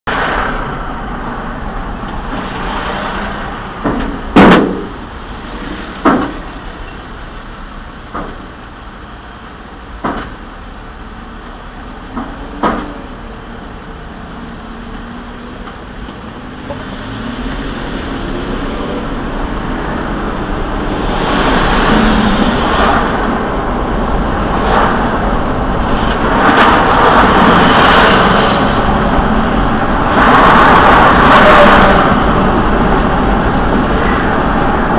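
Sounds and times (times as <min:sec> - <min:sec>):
car interior road noise: 0:00.1 - 0:34.9
sharp knocks: 0:03.8 - 0:05.0, 0:10.0 - 0:10.4.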